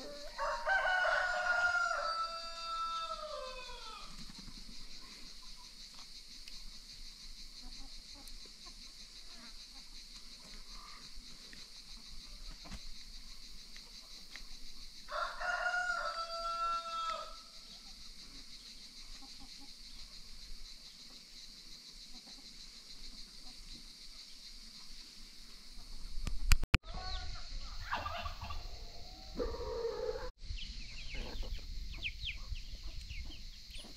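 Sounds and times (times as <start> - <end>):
rooster crowing: 0.0 - 4.1, 15.1 - 17.5, 26.9 - 30.3
steady high-pitched hiss: 0.0 - 33.9.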